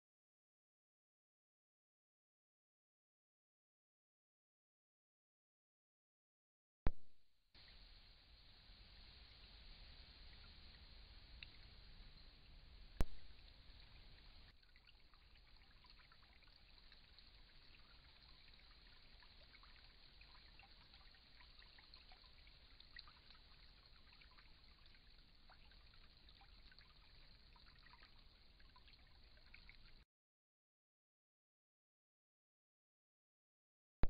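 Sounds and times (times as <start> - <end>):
small ticks: 10.2 - 30.0.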